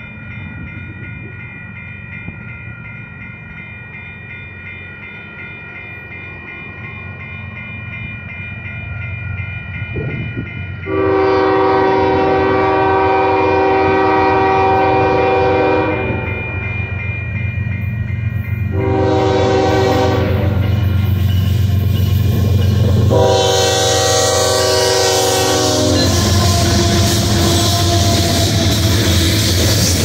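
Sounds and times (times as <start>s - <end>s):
crossing bell ringing: 0.0s - 30.0s
diesel locomotive rumble: 9.6s - 30.0s
locomotive air horn: 10.9s - 16.2s, 18.7s - 20.7s, 23.1s - 29.4s.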